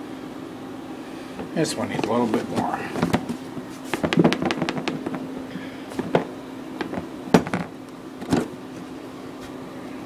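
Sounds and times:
steady low hum: 0.0s - 10.0s
plastic box shaken with clattering: 2.0s - 5.2s.

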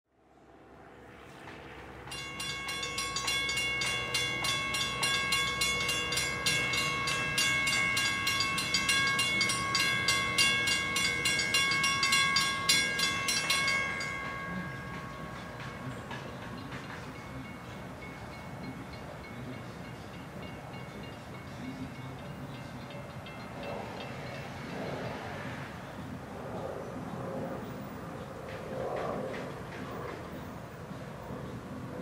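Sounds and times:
distant freight train rumble: 0.2s - 32.0s
railroad warning bell ringing: 1.5s - 25.6s.

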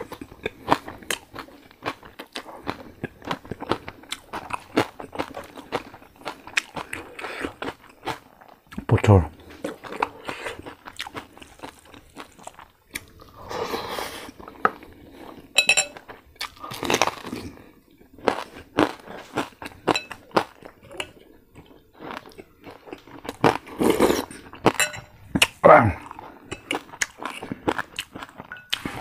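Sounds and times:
wet mouth chewing noises: 0.0s - 13.3s, 16.4s - 29.0s
crunching crispy pork: 16.4s - 17.6s.

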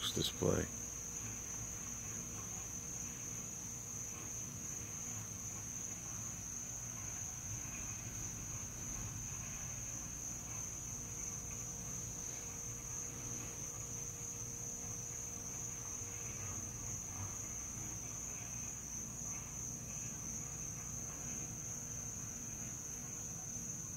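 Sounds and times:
faint low hum: 0.0s - 23.9s
night insects chorus: 0.0s - 23.9s.

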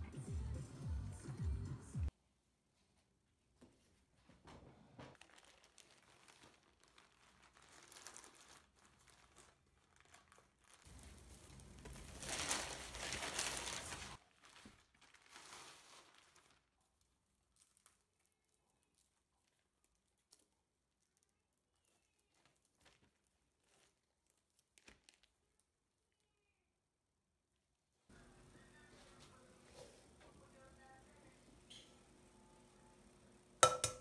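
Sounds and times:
plastic mailer bag crinkling: 5.2s - 25.8s.

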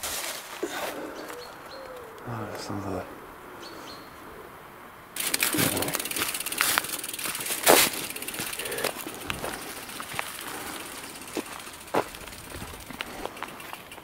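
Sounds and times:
footsteps crunching through dry leaves: 0.0s - 1.4s, 5.2s - 14.0s.

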